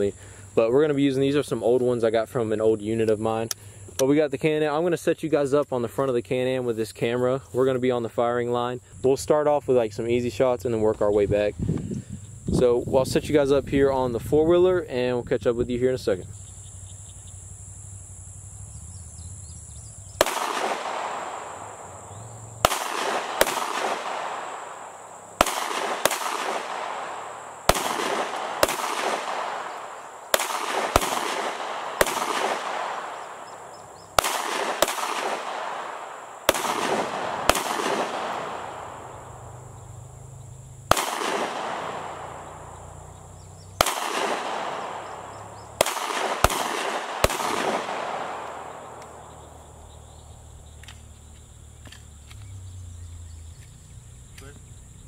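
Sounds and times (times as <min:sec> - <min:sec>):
pistol shots with echo: 0:20.2 - 0:40.0, 0:40.8 - 0:50.0.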